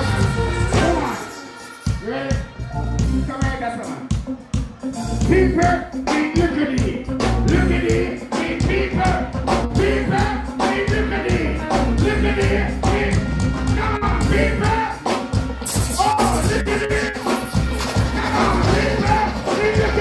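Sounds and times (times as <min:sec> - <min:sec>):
dancehall beat with heavy bass: 0:00.0 - 0:20.0
person singing into microphone: 0:05.3 - 0:15.1.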